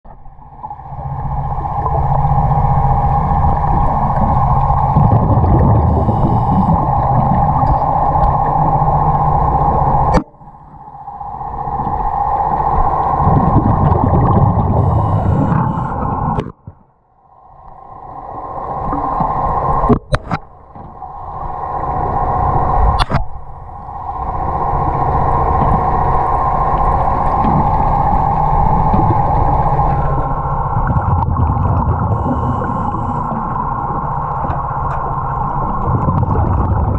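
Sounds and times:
low rumble surges: 0.1 - 36.9
underwater mechanical hum: 0.1 - 36.9.

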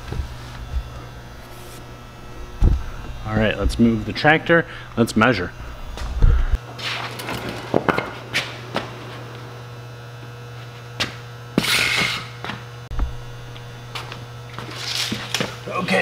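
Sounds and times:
footsteps on concrete floor: 0.0 - 4.0, 5.7 - 9.6, 10.2 - 15.6
low electrical hum: 0.0 - 16.0
low thump: 2.4 - 3.8, 5.6 - 6.6.

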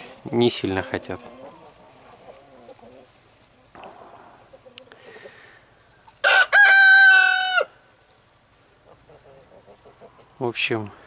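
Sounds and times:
chickens clucking: 0.0 - 7.5, 8.1 - 10.9
rooster crowing: 6.2 - 7.8.

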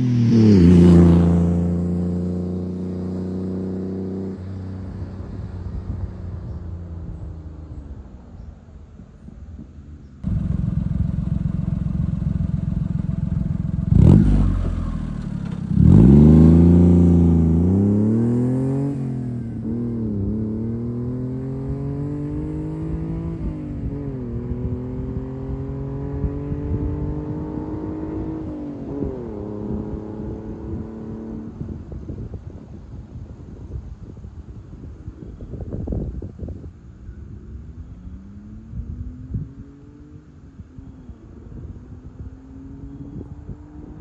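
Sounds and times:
small truck engine accelerating: 10.2 - 23.8.

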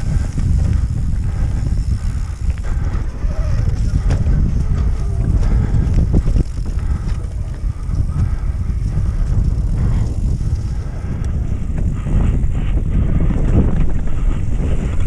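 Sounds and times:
bike tyres rumbling and rattling: 0.0 - 15.0
wind noise on microphone: 0.0 - 15.0.

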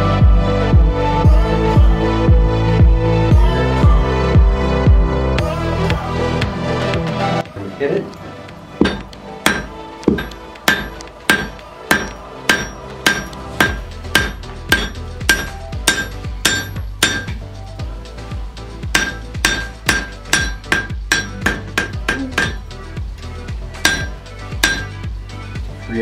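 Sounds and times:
hammer striking iron on anvil: 8.8 - 17.4, 18.9 - 22.6, 23.8 - 25.0.

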